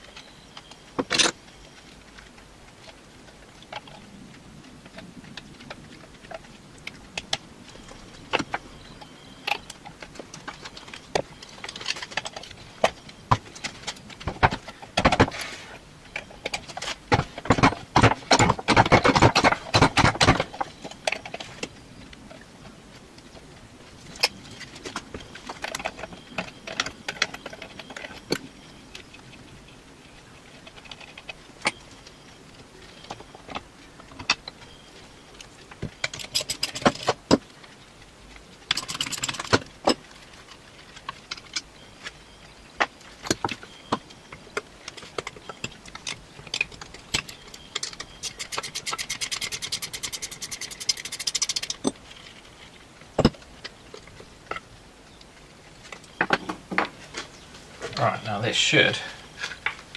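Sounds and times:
rapid even clicking: 42.8s - 52.4s.

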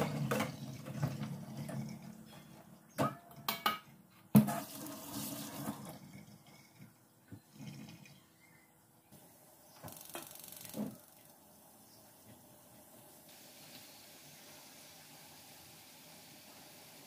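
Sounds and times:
water draining in a metal sink: 0.0s - 3.4s, 4.4s - 8.4s.

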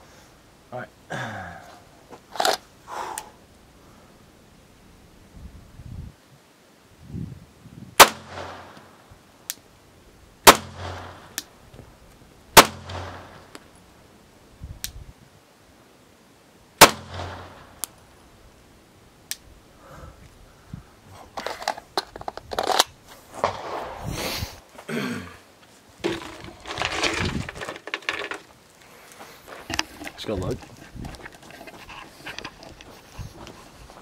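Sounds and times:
pistol shots echoing: 8.0s - 8.8s, 10.4s - 11.3s, 12.6s - 13.4s, 16.8s - 17.7s.

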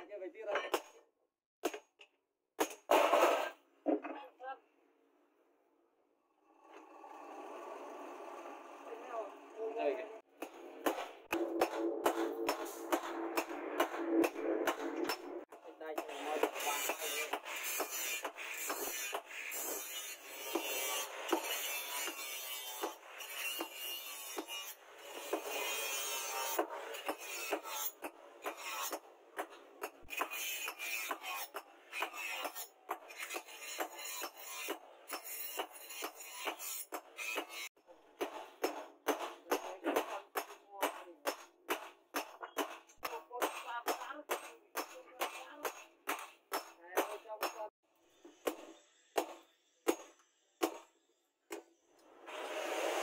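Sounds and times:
hammer striking hot metal on anvil: 10.4s - 15.4s
hammer striking hot steel: 10.4s - 25.7s, 38.2s - 47.7s, 48.4s - 50.9s.

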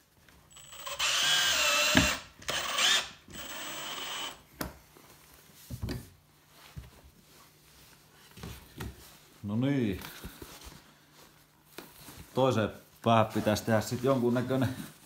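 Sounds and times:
cordless drill driving screw: 0.5s - 4.4s.

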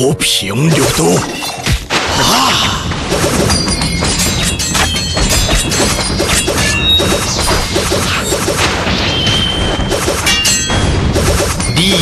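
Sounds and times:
dramatic background music: 0.0s - 12.0s
sword blades clashing: 3.3s - 10.8s.

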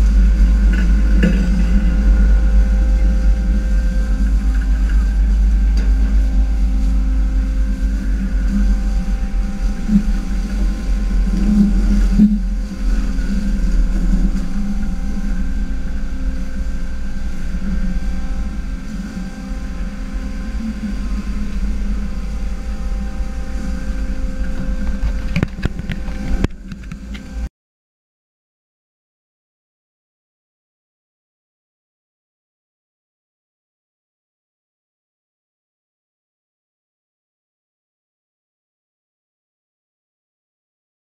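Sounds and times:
boat engine drone: 0.0s - 27.5s
heavy low rumble: 0.0s - 27.5s
water rushing along hull: 0.0s - 27.5s.

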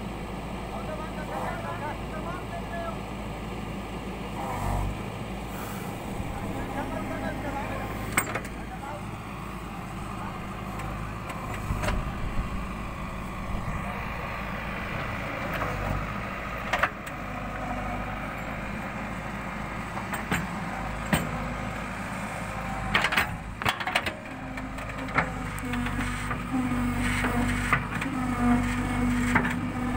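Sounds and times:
diesel engine under hydraulic load: 0.0s - 29.9s.

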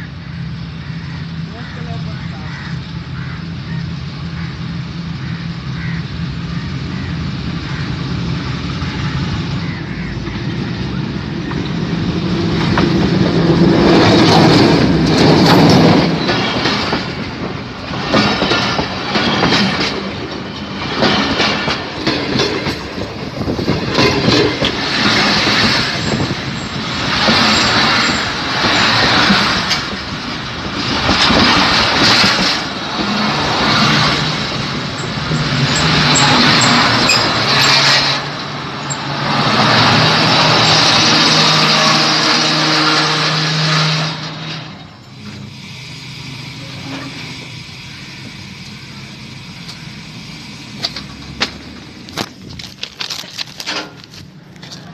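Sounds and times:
locomotive engine hum: 0.0s - 54.9s
train wheels clattering: 11.4s - 43.2s.

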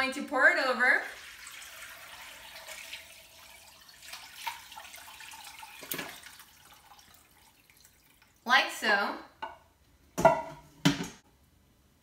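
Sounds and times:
liquid trickling through strainer: 1.2s - 8.4s.

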